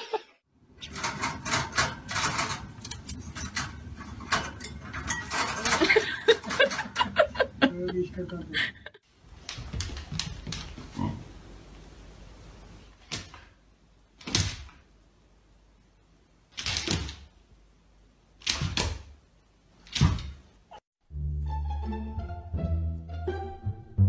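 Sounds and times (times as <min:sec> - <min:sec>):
dogs scuffing thumps: 0:09.4 - 0:11.0.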